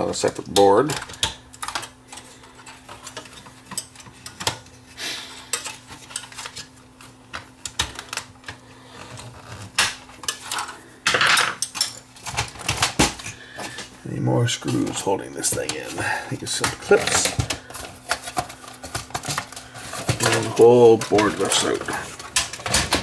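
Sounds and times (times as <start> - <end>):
metal parts clattering: 16.5 - 23.0.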